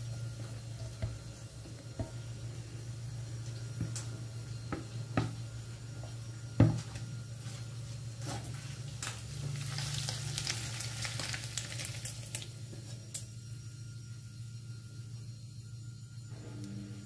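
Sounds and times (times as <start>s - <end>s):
sizzling hiss of fried meat: 9.3s - 12.5s.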